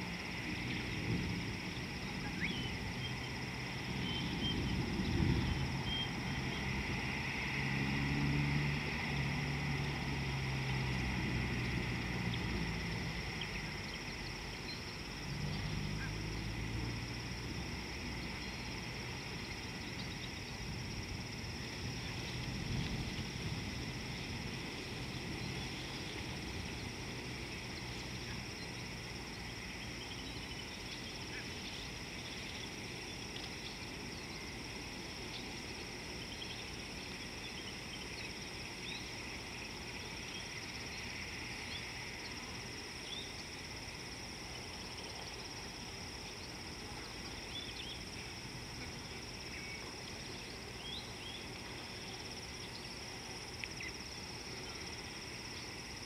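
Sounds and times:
insect chorus: 0.0 - 56.0
low background noise: 0.0 - 56.0
short insect chirps: 24.2 - 56.0.

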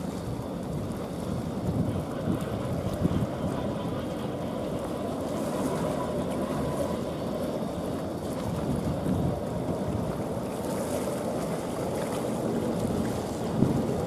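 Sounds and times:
sea noise: 0.0 - 14.0
wind: 0.0 - 14.0
wind buffeting microphone: 0.0 - 14.0.

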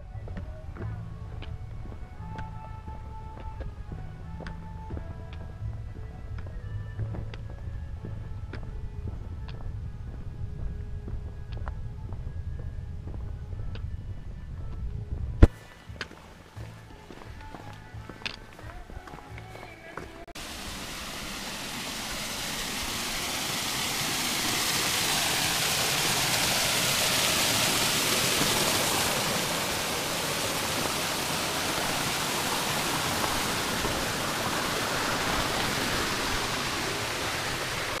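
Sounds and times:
water rushing down a weir: 20.4 - 38.0.

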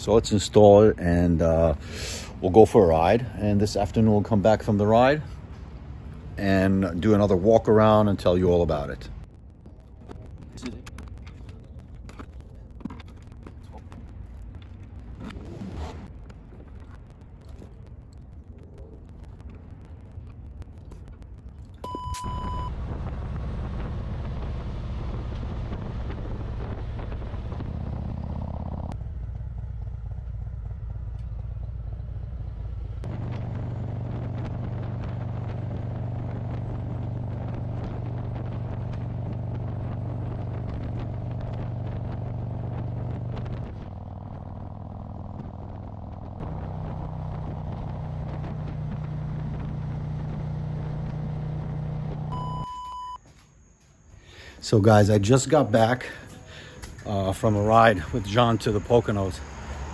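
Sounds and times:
road and wind noise: 0.0 - 59.9
motorcycle engine running: 22.5 - 52.6.

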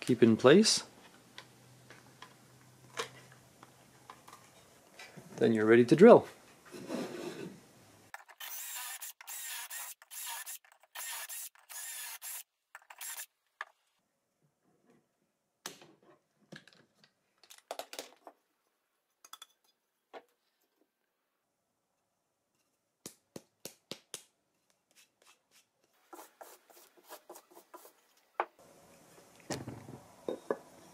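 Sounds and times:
cordless drill boring into wood: 8.4 - 12.4, 13.0 - 13.3.

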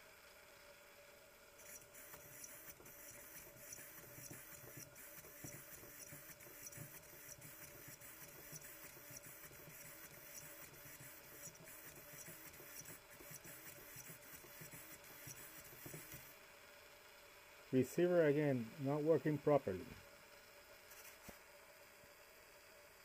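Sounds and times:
servo motor whirring and clicking: 1.6 - 16.3, 20.9 - 21.4.

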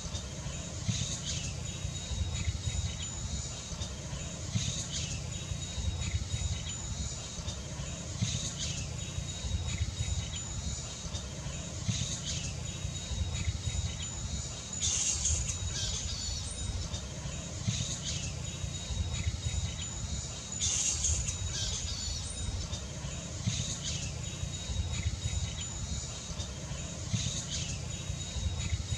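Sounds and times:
flying foxes squawking: 0.0 - 28.9
high insect-like whine: 0.0 - 28.9.

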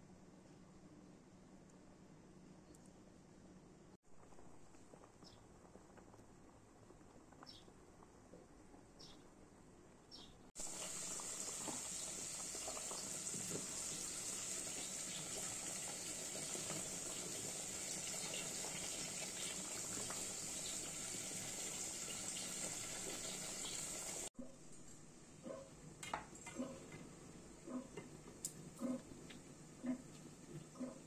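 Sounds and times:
food sizzling in a pan: 10.6 - 24.4.

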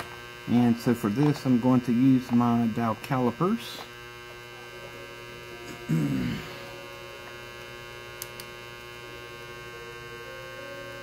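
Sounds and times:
electrical mains hum: 0.0 - 11.0
small clicks: 8.2 - 8.5.

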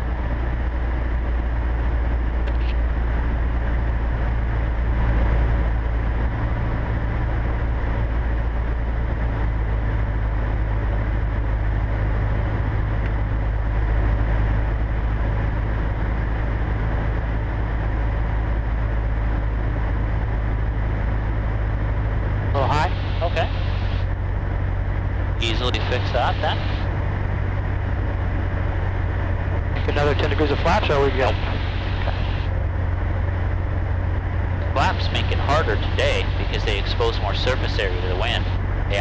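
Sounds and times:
airplane engine droning in cabin: 0.0 - 39.0.

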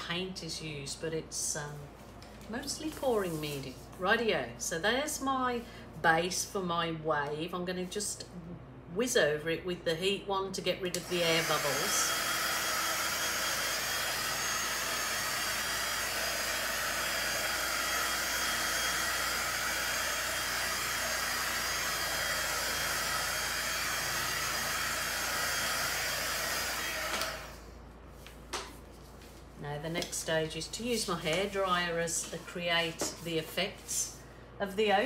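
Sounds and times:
heat gun blowing: 11.0 - 27.8.

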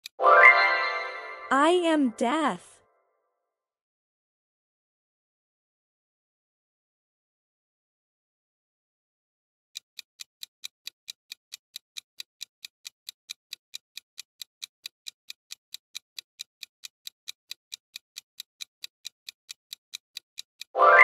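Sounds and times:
clock-like ticking: 9.8 - 21.0.

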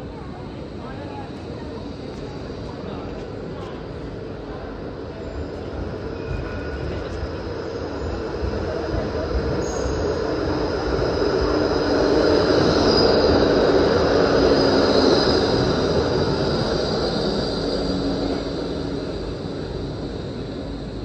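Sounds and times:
tram rolling past: 0.0 - 21.0
wheels squealing on rails: 5.1 - 21.0.

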